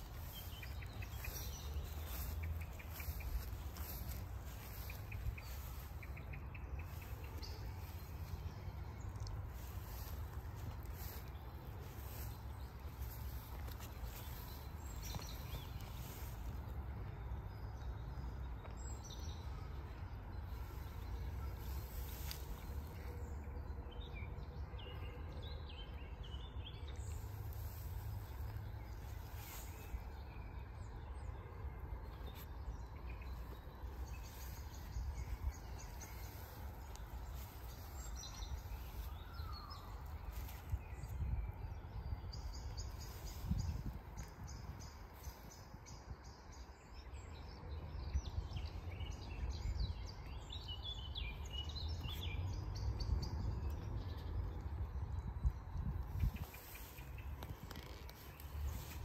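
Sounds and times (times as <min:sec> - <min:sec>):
songbirds chirping and trilling: 0:00.0 - 0:59.0.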